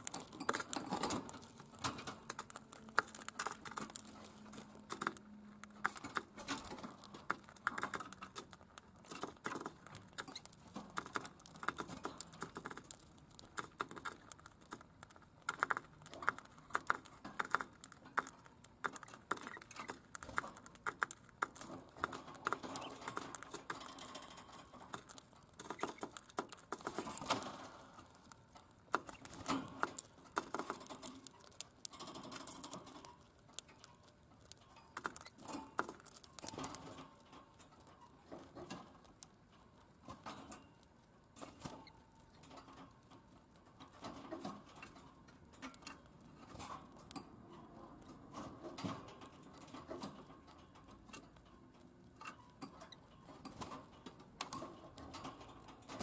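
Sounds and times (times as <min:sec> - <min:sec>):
bird beak pecking plastic: 0:00.0 - 0:37.1.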